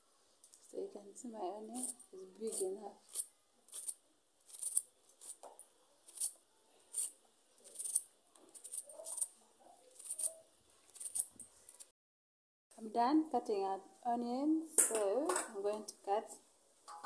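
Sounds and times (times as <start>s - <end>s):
knife slicing through onion: 1.8s - 5.4s.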